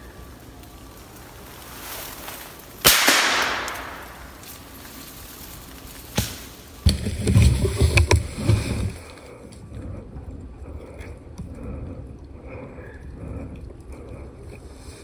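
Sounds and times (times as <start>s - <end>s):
rifle shot echoing: 2.8s - 4.4s.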